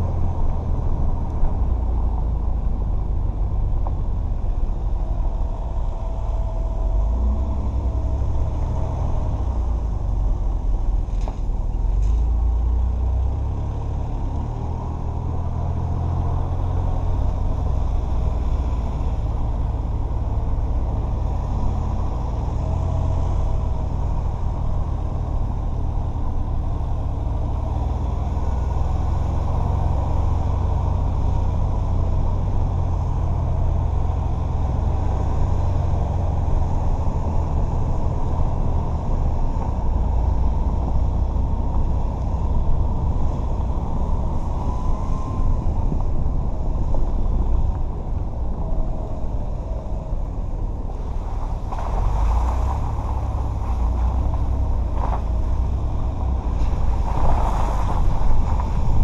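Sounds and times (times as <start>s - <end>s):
vehicle engine rumble: 0.0s - 59.0s
tyre noise on dirt: 50.9s - 59.0s.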